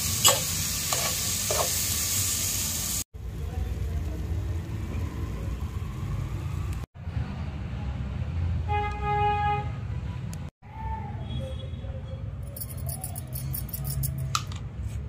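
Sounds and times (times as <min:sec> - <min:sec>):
road traffic rumble: 0:03.2 - 0:10.5
vehicle horn: 0:08.7 - 0:10.4.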